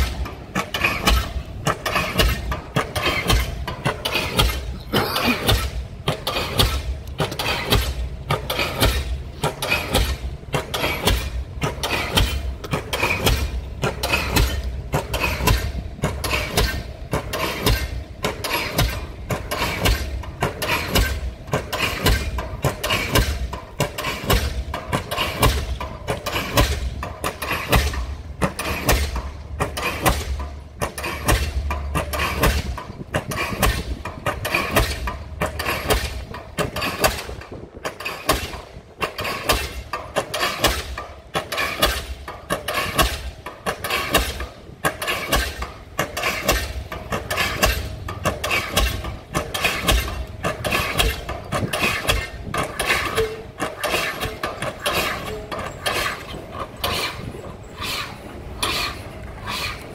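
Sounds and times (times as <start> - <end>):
engine droning: 0.0 - 59.9
pile hammer heavy blows: 0.0 - 59.9.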